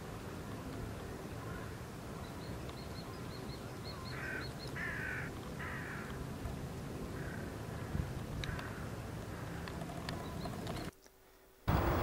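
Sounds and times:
crow cawing: 4.1s - 6.1s, 7.2s - 9.7s.

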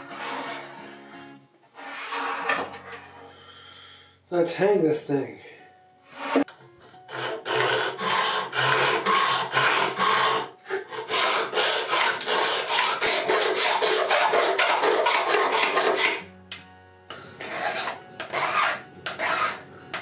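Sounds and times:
hacksaw cutting metal rod: 6.3s - 16.3s, 17.4s - 20.0s.

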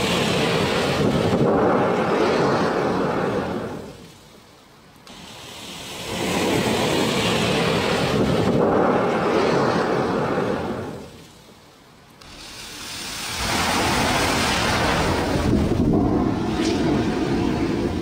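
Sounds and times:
matches igniting with rushing hiss: 0.0s - 18.0s.

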